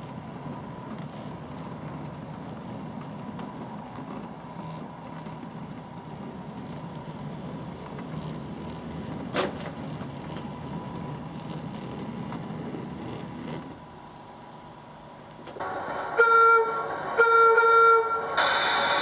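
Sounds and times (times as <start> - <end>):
model train rumbling: 0.0 - 19.0
model train horn blast: 15.6 - 19.0.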